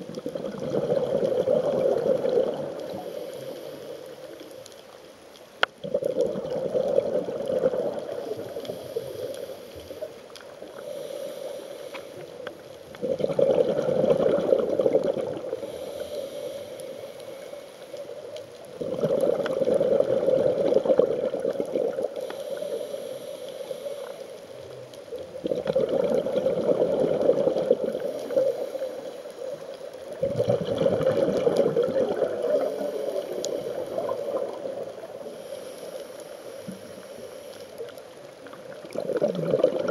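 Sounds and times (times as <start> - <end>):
regulator exhaust bubbles underwater: 0.0 - 3.1, 5.8 - 8.6, 13.0 - 15.8, 18.8 - 22.2, 25.4 - 28.5, 30.1 - 35.2, 38.5 - 39.9
diver breathing: 7.5 - 12.5, 15.5 - 18.2, 22.1 - 24.7, 31.4 - 37.8.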